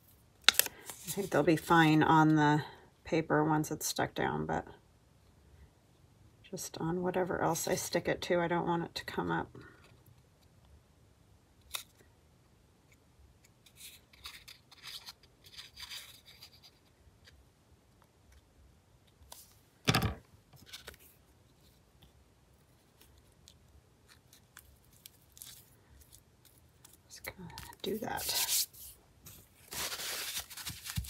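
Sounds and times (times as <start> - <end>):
paper rustling: 27.6 - 31.0.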